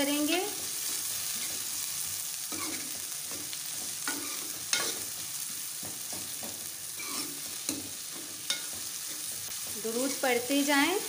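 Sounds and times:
onions sizzling in oil: 0.0s - 11.0s
metal spoon scraping a pan: 2.5s - 5.6s, 6.9s - 10.4s.

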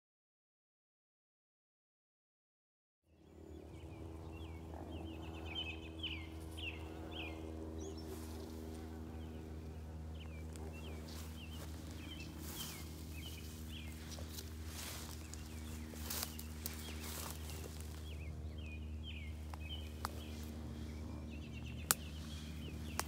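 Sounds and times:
bird chirping: 3.1s - 23.0s
insects buzzing: 3.2s - 23.0s
footsteps through grass: 6.3s - 23.0s.

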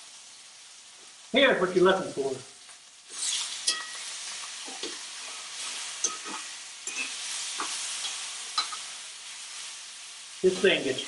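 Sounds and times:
steaks sizzling in skillet: 0.0s - 11.0s
metal tongs clicking on pan: 3.6s - 5.0s, 6.0s - 8.9s.

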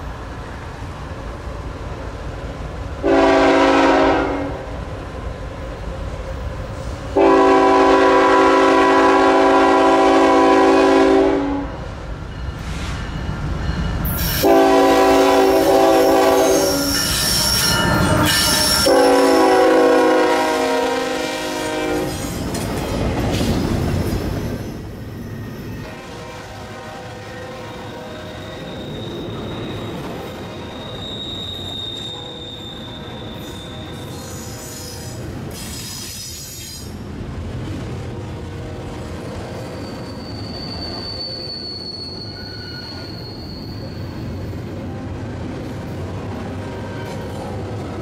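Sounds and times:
train rumbling: 0.0s - 48.0s
locomotive air horn blasts: 3.0s - 4.6s, 7.2s - 11.8s, 14.2s - 22.3s, 25.8s - 28.7s, 31.8s - 35.2s
train cars clattering over rails: 22.0s - 26.0s.

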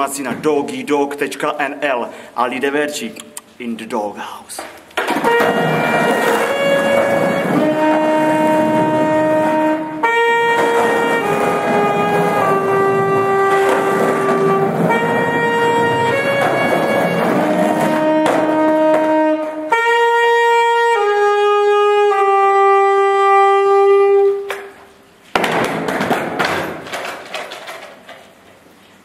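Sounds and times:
saxophone long held notes: 5.2s - 24.7s.

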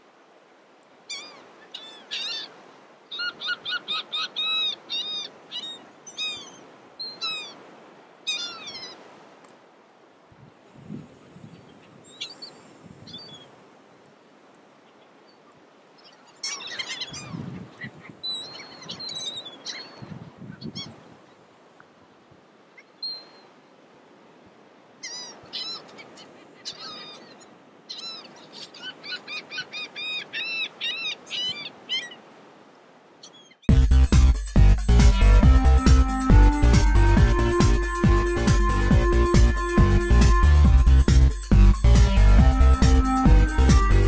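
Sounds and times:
birds calling: 1.1s - 7.7s, 8.3s - 9.0s, 15.9s - 20.9s, 25.0s - 32.3s, 33.2s - 44.0s
low rumbling: 33.7s - 44.0s.

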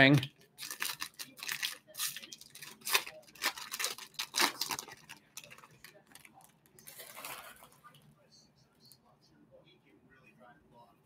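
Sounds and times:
foil wrapper crinkling and tearing: 0.5s - 7.7s.

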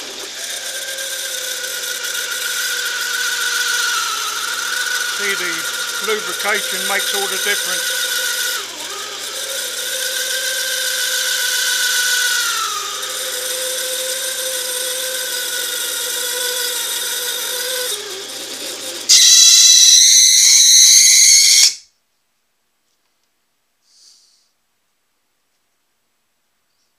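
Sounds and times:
lathe cutting steel whine: 0.0s - 20.8s
high-pitched ringing squeal: 19.1s - 21.8s.

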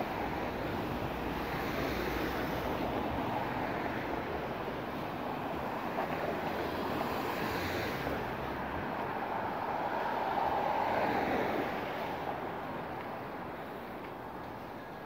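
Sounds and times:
passing vehicles: 0.0s - 15.0s.

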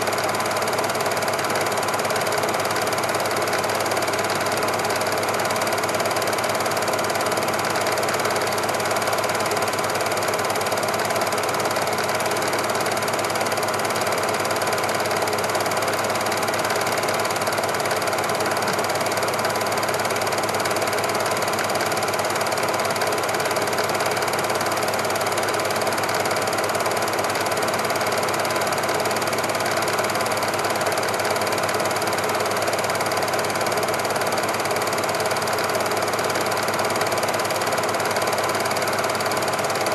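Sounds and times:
film projector clattering: 0.0s - 39.9s.

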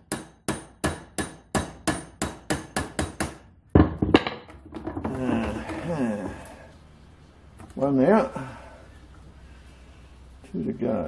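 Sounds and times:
hammer tapping steel punch: 0.0s - 3.4s
clatter of metal knocks: 3.8s - 5.1s.

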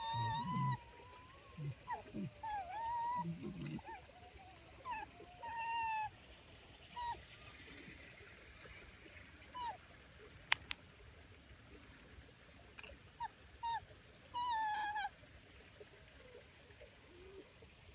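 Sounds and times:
short high animal calls: 0.0s - 5.1s.

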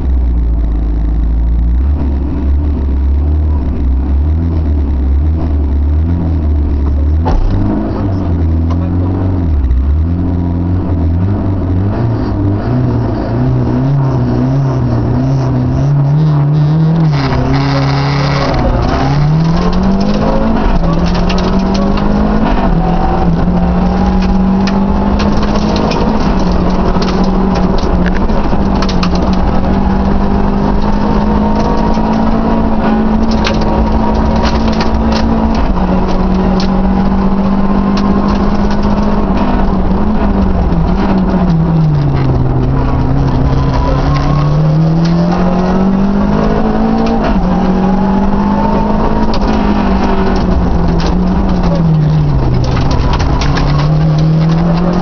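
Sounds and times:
rally car engine revving: 0.0s - 55.0s
sharp clicks and rattles: 16.5s - 55.0s.

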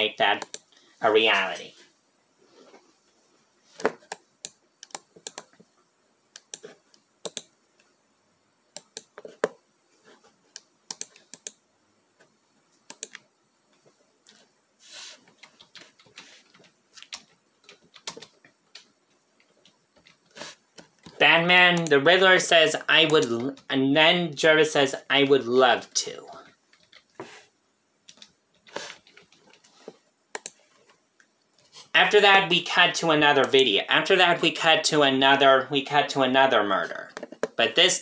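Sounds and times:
irregular clicks and taps: 0.4s - 0.8s, 3.8s - 8.0s, 8.7s - 9.6s, 10.5s - 11.6s, 12.2s - 14.5s, 15.2s - 21.2s, 26.3s - 27.3s, 28.0s - 31.6s, 37.1s - 37.6s.

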